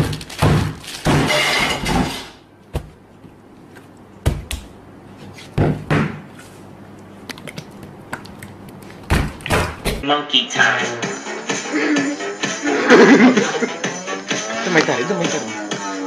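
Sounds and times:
hand slapping sandwiches: 2.7s - 6.5s, 7.2s - 10.0s
rustling squelching noise: 6.3s - 9.5s.

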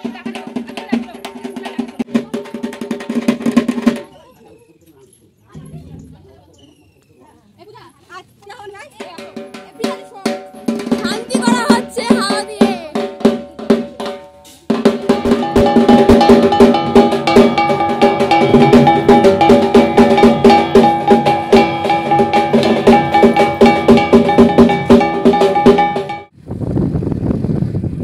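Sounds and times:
drumming: 0.0s - 4.2s, 5.6s - 6.8s, 8.9s - 26.3s
metal gong beating: 5.6s - 6.5s, 15.2s - 26.3s.

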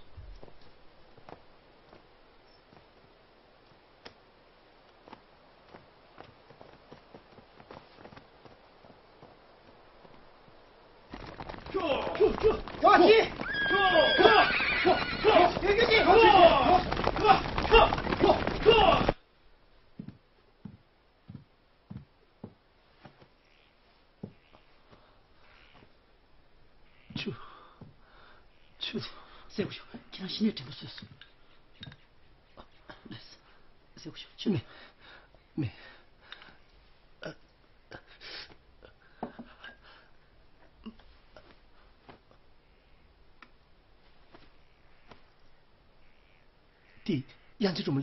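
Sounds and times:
soft footsteps on a floor: 19.9s - 23.4s, 24.2s - 25.0s
faint rustling: 38.4s - 47.0s.

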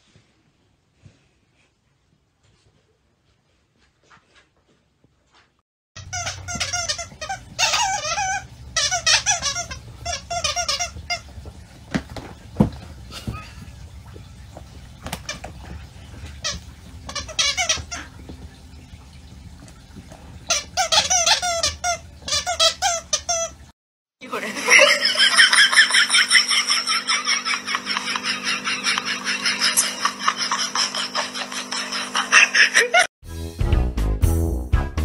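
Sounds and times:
squeaky toy squeaks: 6.0s - 11.3s, 16.4s - 18.0s, 20.5s - 23.6s.

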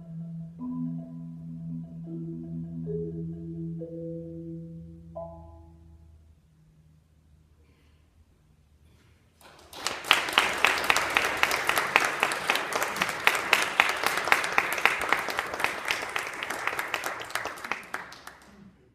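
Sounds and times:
audience applause: 9.4s - 18.8s.

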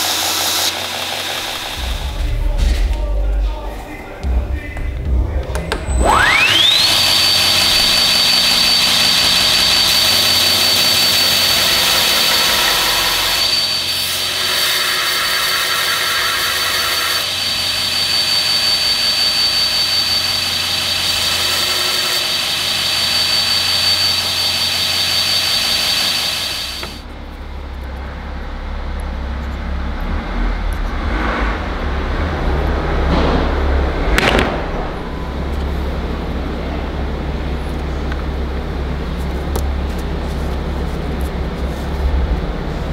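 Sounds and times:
belt grinder whine: 0.0s - 2.5s, 5.6s - 27.1s
low steady rumble: 1.2s - 12.1s, 27.0s - 42.9s.

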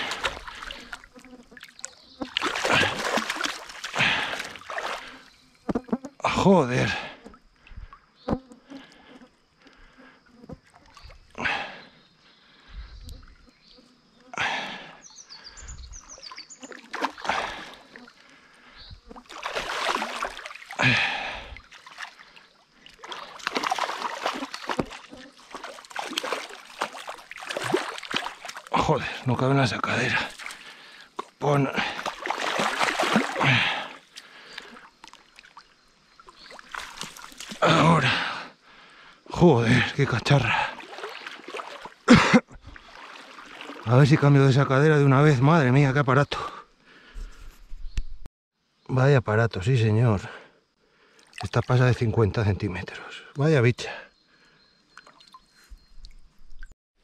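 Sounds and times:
fish splashing in water: 0.0s - 5.3s, 16.2s - 18.2s, 19.1s - 29.2s, 30.1s - 37.8s, 40.6s - 42.1s, 42.7s - 43.9s.

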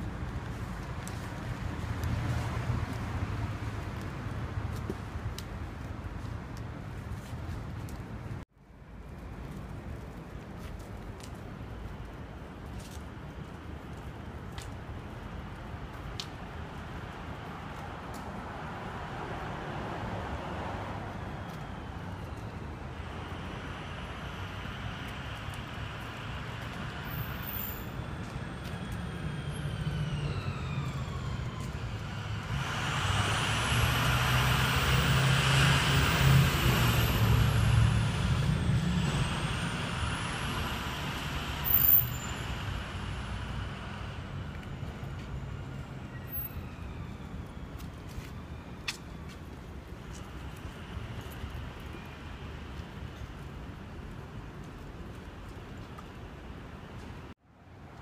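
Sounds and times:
city street traffic: 0.0s - 58.0s
heavy vehicle engine passing: 18.4s - 47.7s.

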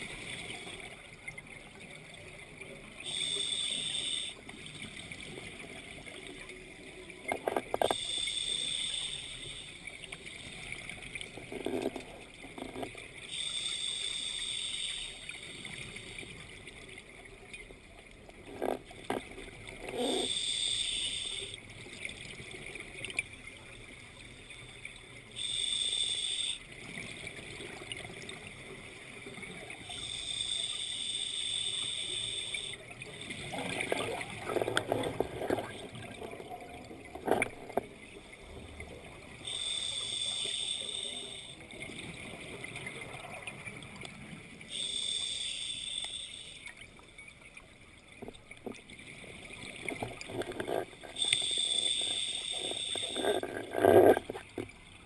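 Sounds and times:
regulator air hiss: 3.1s - 4.4s, 8.0s - 9.8s, 13.3s - 15.3s, 20.3s - 21.6s, 25.4s - 26.6s, 29.9s - 32.8s, 39.5s - 41.6s, 44.7s - 46.7s, 51.2s - 53.3s.

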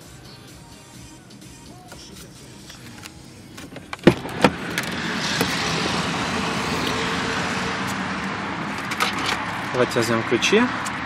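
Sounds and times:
rush of outside noise: 1.3s - 11.0s
car door latch clunks: 3.6s - 5.6s.

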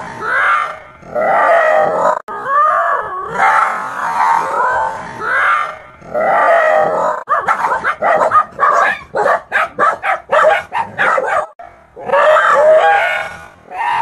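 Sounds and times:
dog barking: 7.2s - 13.3s.

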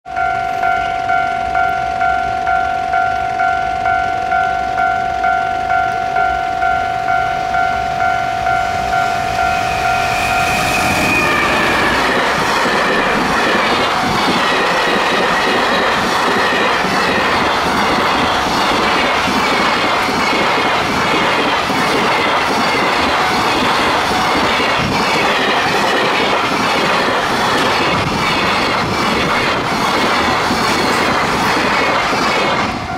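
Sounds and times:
freight train rumbling past: 0.1s - 32.9s
level-crossing warning bell: 0.1s - 32.9s
wheels clicking over rail joints: 11.3s - 32.9s.

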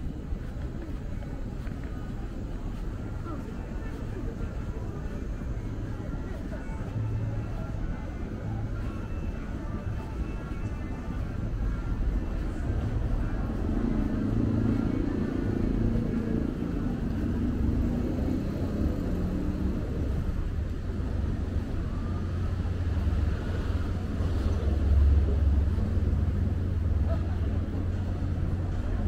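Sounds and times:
cars and motorbikes passing: 6.7s - 29.0s.

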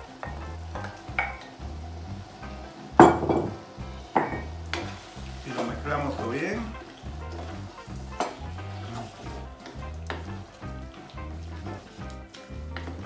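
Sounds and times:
soft background music: 0.0s - 13.0s
wooden spoon scraping and knocking: 3.0s - 13.0s.

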